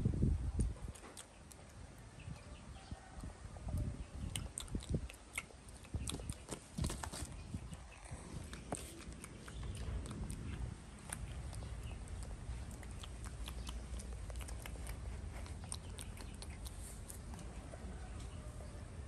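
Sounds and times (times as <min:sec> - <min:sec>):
low steady rumble: 0:00.0 - 0:00.9, 0:07.3 - 0:19.0.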